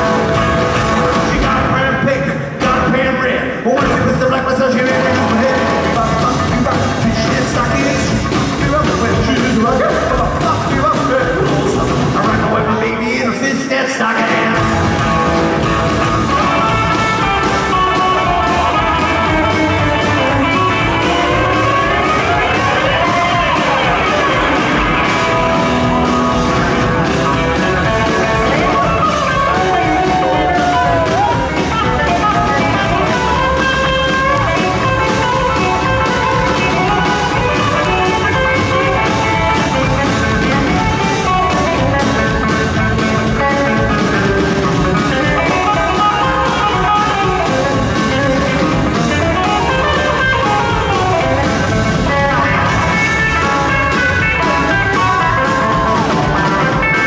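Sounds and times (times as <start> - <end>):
electric guitar lead lines: 0.0 - 2.9, 14.2 - 57.0
rockabilly band playing: 0.0 - 57.0.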